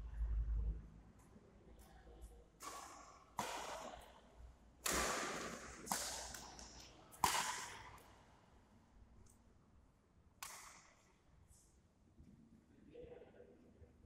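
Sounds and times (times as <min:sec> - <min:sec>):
rackets hitting shuttlecock echoing: 0:02.6 - 0:08.4, 0:10.4 - 0:11.1.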